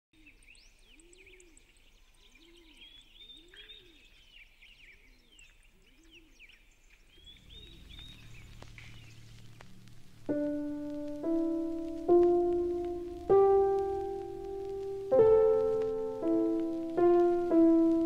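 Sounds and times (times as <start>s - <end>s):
birds chirping and warbling: 0.2s - 11.9s
low bird call: 7.2s - 18.0s
low rumble: 7.2s - 18.0s
piano note: 9.7s - 18.0s.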